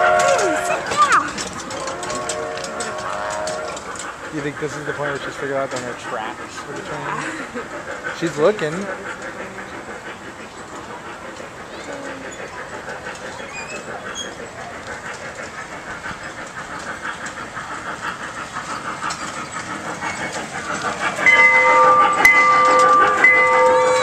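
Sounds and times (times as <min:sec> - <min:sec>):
chord-like train whistle: 0:00.0 - 0:01.0, 0:01.8 - 0:03.8
train chugging clatter: 0:00.0 - 0:24.0.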